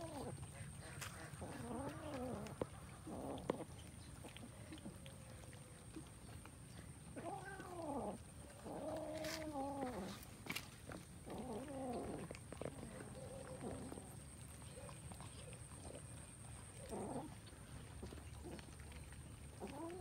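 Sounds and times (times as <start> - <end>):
cats yowling: 7.2 - 10.2, 19.6 - 20.0.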